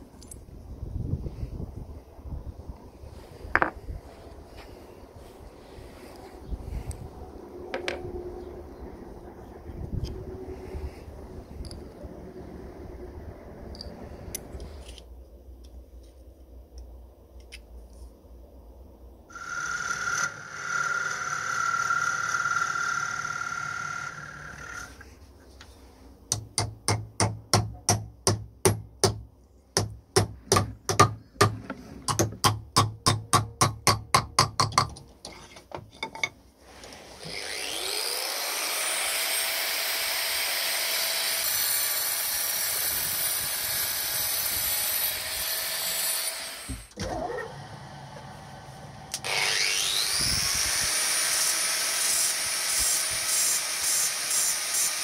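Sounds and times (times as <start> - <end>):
electric rotary tool whine: 19.3 - 25.0, 36.8 - 55.0.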